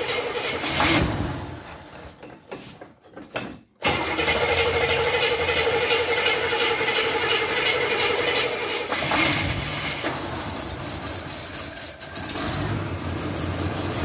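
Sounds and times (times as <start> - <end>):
car engine starting and running: 3.8 - 14.0.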